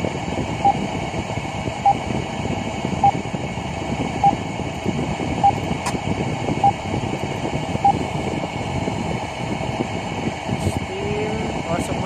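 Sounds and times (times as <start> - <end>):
machinery hum: 0.0 - 12.0
electronic alarm beep: 0.6 - 0.8, 1.8 - 2.0, 3.0 - 3.2, 4.2 - 4.4, 5.4 - 5.6, 6.6 - 6.8, 7.8 - 8.0.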